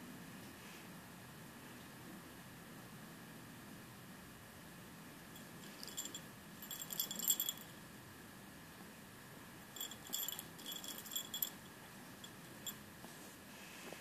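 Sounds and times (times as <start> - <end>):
cat collar tag jingling: 5.4 - 7.8, 9.8 - 12.8.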